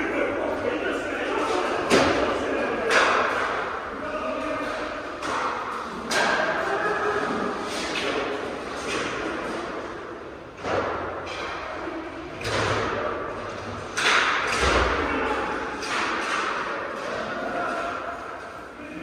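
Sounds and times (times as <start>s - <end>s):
hockey sticks and puck knocking: 1.5s - 3.8s, 4.4s - 9.8s, 12.4s - 18.0s.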